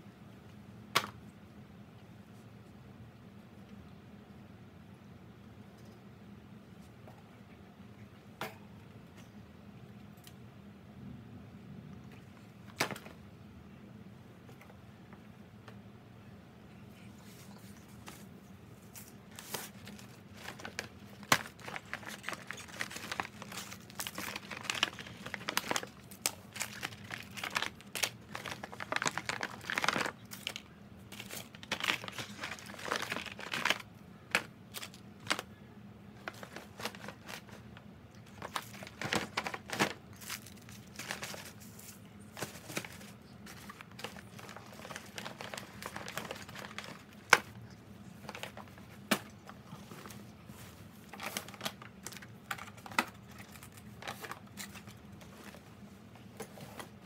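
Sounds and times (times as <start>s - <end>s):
paper bags rustling: 17.4s - 35.5s, 36.2s - 47.6s, 48.2s - 49.3s, 49.9s - 55.7s.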